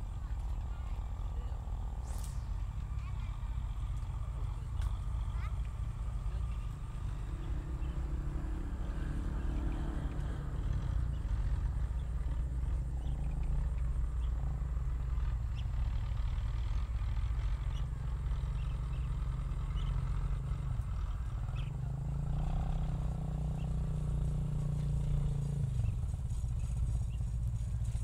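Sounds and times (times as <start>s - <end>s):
steady low rumble: 23.1s - 28.0s.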